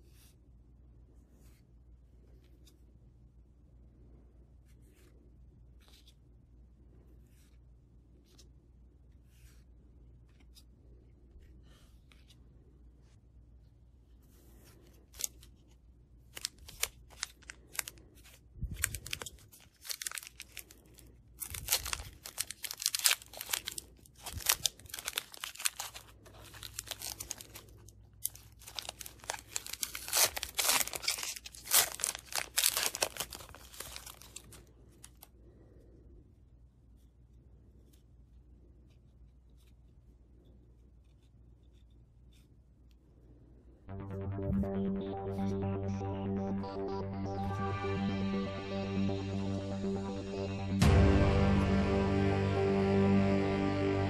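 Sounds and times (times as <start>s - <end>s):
foil pack crackling and ripping: 18.8s - 34.6s.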